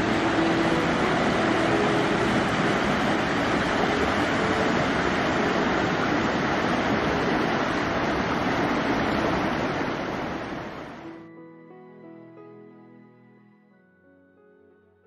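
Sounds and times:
soft music with held notes: 0.0s - 9.6s, 11.0s - 15.0s
waterfall rushing: 0.0s - 11.2s.

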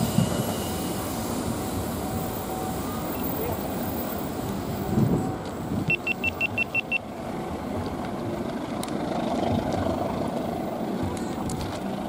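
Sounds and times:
rumble of vehicles: 0.0s - 12.0s
short high electronic beeps: 5.9s - 7.0s.

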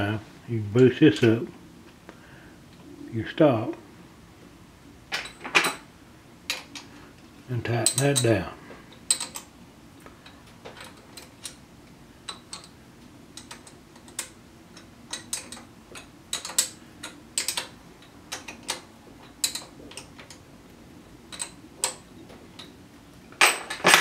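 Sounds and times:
metal parts clicking and clinking: 7.8s - 9.5s, 10.2s - 11.6s, 12.2s - 20.4s, 21.3s - 22.0s, 22.6s - 24.0s.

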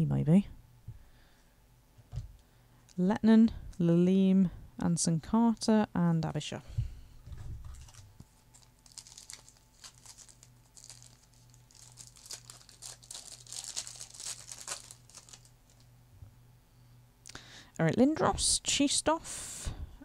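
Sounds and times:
low steady hum: 0.0s - 20.0s
wrapper tearing and crinkling: 7.6s - 15.8s.

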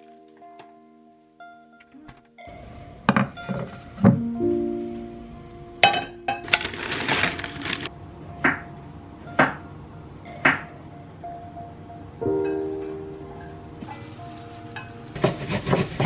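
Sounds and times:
soft background music: 0.0s - 16.0s
rustling: 6.4s - 7.9s.

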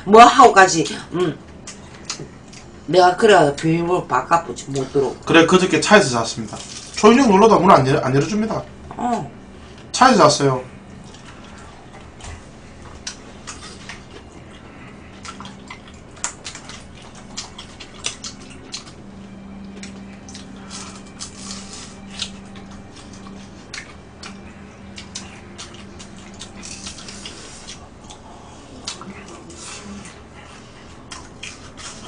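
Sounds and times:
faint steady hum: 0.0s - 32.0s
wet chewing and lip smacks: 1.5s - 2.7s, 10.9s - 32.0s.

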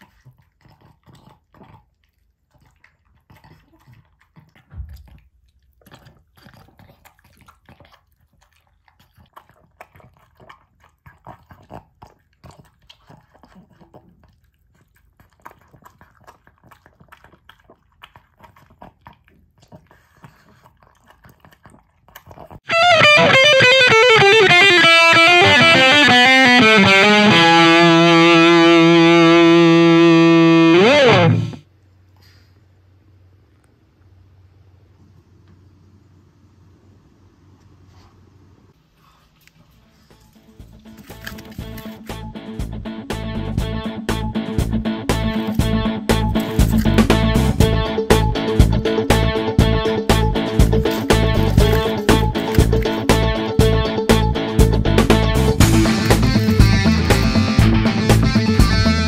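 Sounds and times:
dog chewing and licking: 0.0s - 22.7s, 38.7s - 57.3s
distorted guitar music sting: 22.7s - 31.6s, 42.2s - 59.0s.

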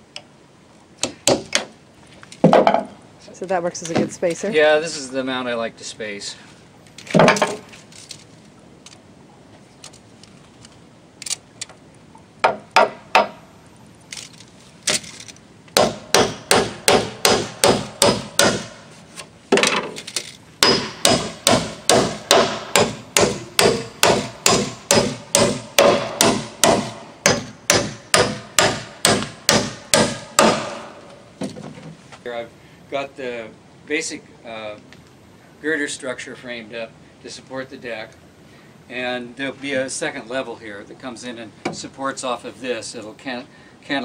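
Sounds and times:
hammer driving nails into wood: 15.8s - 18.7s, 20.6s - 30.9s.

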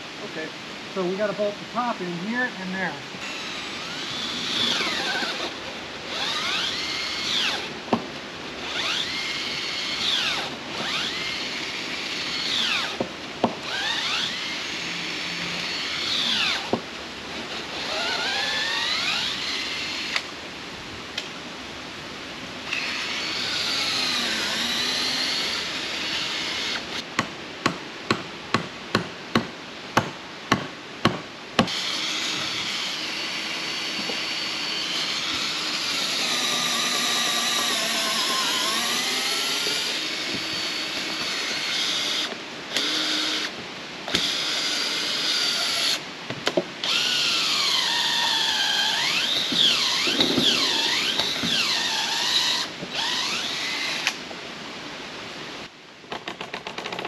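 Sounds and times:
cordless drill boring wood: 3.2s - 7.8s, 8.6s - 13.0s, 13.6s - 16.8s, 17.4s - 20.3s, 22.7s - 27.0s, 31.7s - 46.0s, 46.8s - 54.2s.

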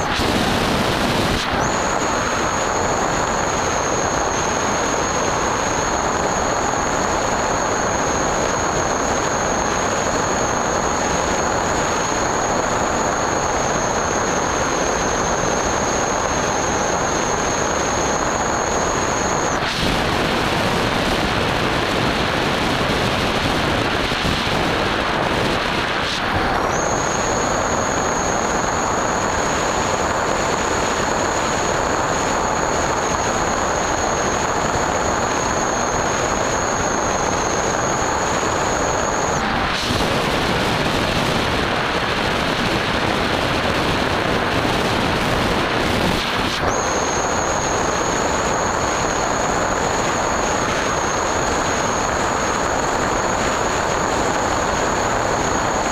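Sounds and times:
electric motor whine: 0.0s - 55.9s
wind rushing over microphone: 0.0s - 55.9s.

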